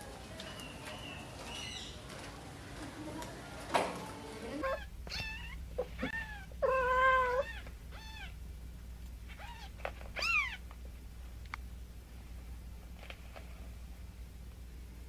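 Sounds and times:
cat meowing: 4.6s - 8.4s, 9.3s - 10.6s.

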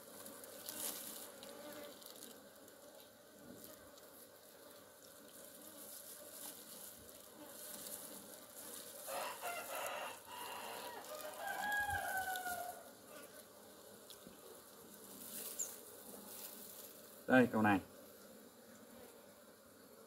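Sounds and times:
honeybees humming: 0.0s - 20.0s
rooster crowing: 9.1s - 12.9s.

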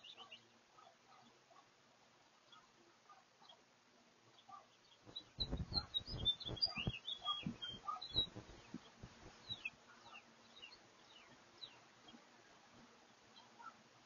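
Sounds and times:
songbirds chirping: 0.0s - 14.0s
short low thuds: 5.1s - 9.6s
down-slurred bird whistles: 5.3s - 8.4s.

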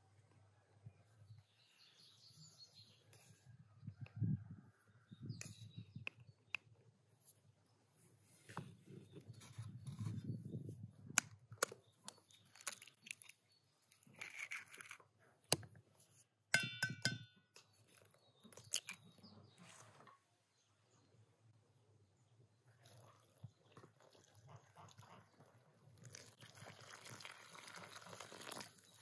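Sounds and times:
soft handling and rubbing: 7.2s - 10.8s, 19.5s - 20.2s
eggs cracking against a bowl: 11.6s - 15.7s, 16.6s - 19.1s
ringing clink: 16.6s - 17.3s.

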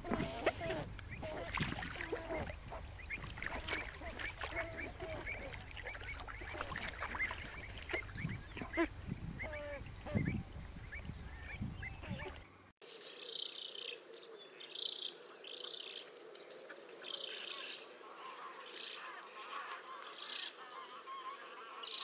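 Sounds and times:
waterbirds honking and quacking: 0.0s - 12.6s, 17.2s - 22.0s.

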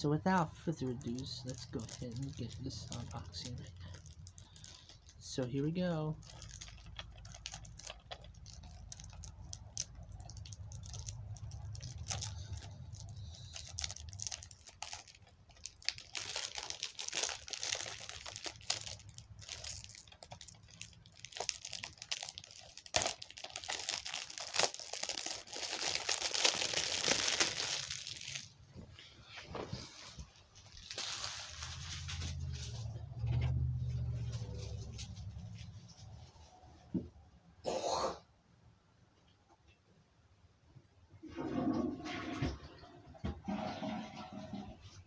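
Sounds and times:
plastic wrap crinkling: 0.7s - 33.0s.

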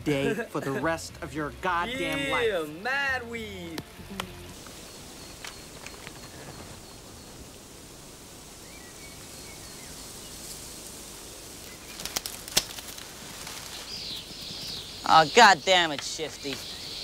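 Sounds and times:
steady background hiss: 0.0s - 17.0s
faint bird chirps: 4.5s - 10.7s, 13.4s - 17.0s.

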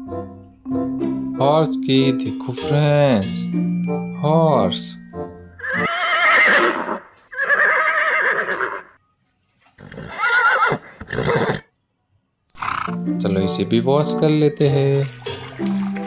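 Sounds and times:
horse whinnying: 5.6s - 9.0s, 9.8s - 11.7s, 12.5s - 13.0s.

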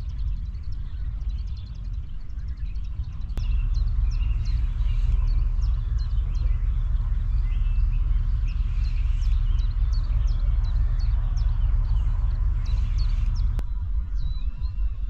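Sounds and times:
bird chirping: 0.0s - 15.0s
wind buffeting microphone: 0.0s - 15.0s.

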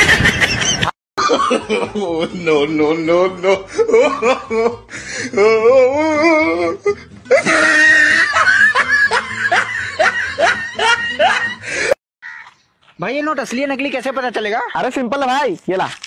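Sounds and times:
loud human laughter: 0.0s - 12.0s
music: 2.0s - 11.9s.

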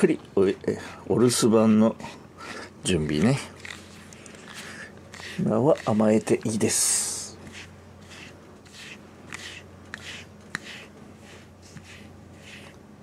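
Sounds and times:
brush swishing through fur: 5.1s - 12.8s.

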